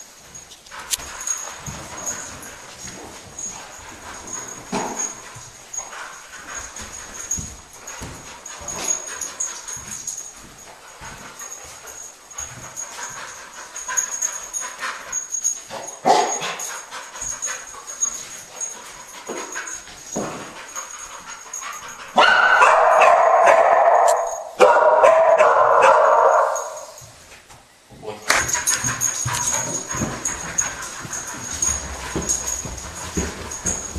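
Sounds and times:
dog barking loudly: 16.0s - 16.4s, 22.2s - 26.8s.

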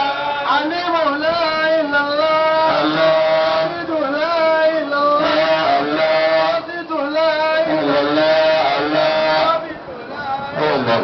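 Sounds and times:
man singing long notes: 0.0s - 11.0s.

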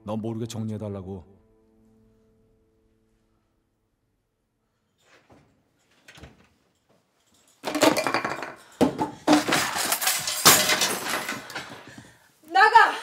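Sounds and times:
objects crashing onto floor: 7.4s - 12.2s.

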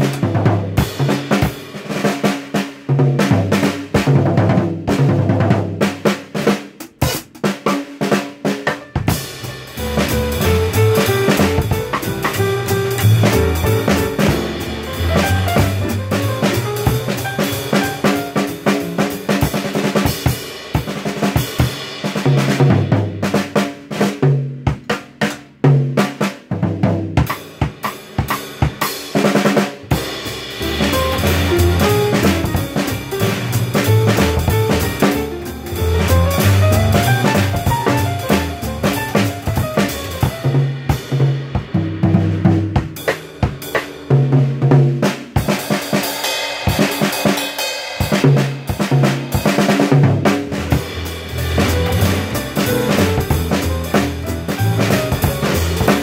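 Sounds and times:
bass and melody backing track: 0.0s - 2.0s, 8.2s - 23.5s, 26.5s - 44.0s, 50.0s - 56.0s
jazz drum kit playing: 0.0s - 56.0s.

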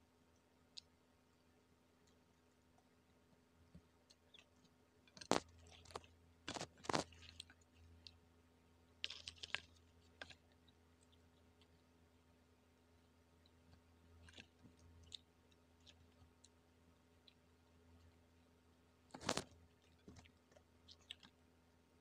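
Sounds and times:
crunching of crispy fried chicken: 4.1s - 8.3s, 8.9s - 11.9s, 13.4s - 18.2s, 19.0s - 21.4s.

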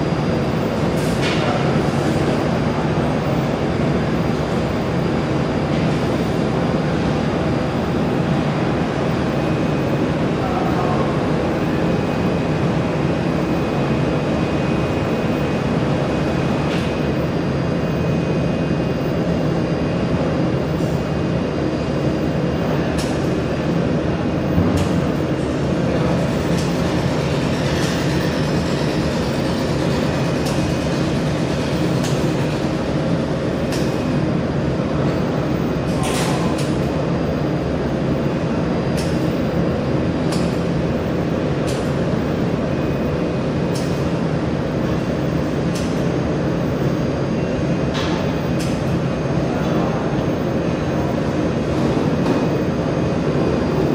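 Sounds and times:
laser welding machine humming: 0.0s - 53.9s.

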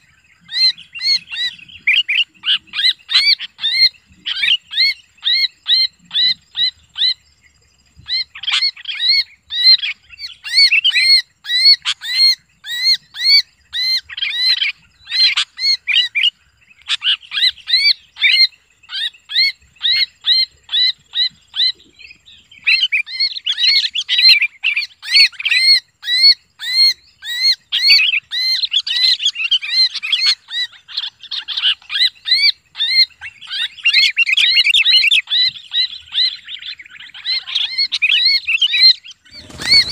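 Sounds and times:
bird distress screams: 37.3s - 39.9s.

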